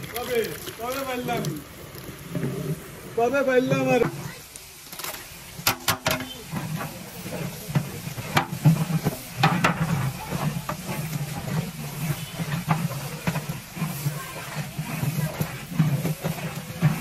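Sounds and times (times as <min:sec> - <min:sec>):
food sizzling in pot: 0:00.0 - 0:17.0
metal ladle scraping pot: 0:05.0 - 0:17.0.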